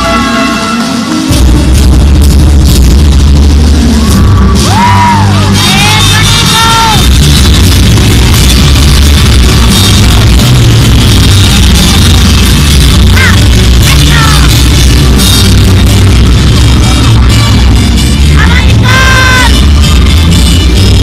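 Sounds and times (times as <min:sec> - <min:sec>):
short sliding high notes: 0:00.0 - 0:01.4
loud music over loudspeakers: 0:00.0 - 0:21.0.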